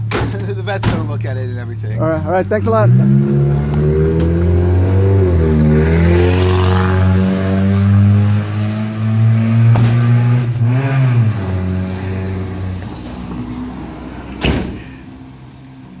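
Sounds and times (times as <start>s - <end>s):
vehicle engine running loudly: 1.8s - 16.0s
sliding van door slamming: 14.1s - 15.1s.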